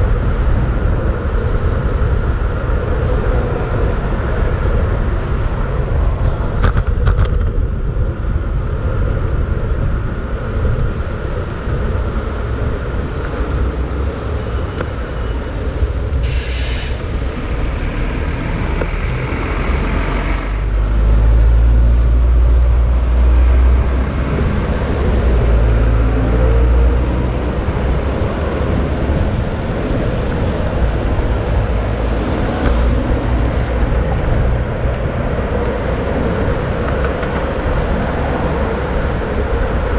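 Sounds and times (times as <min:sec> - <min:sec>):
heavy low rumble: 0:00.0 - 0:39.9
road traffic: 0:00.0 - 0:39.9
loud hiss: 0:16.2 - 0:17.0.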